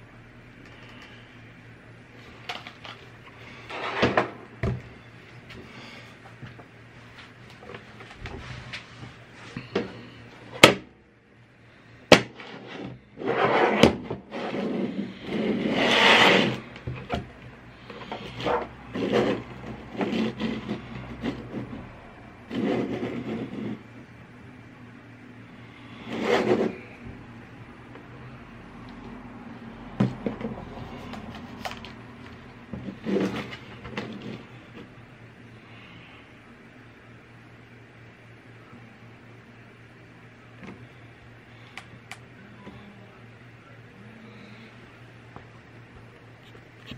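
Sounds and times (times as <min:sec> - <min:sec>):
steady low hum: 0:00.0 - 0:46.9
rubbing: 0:12.4 - 0:16.7.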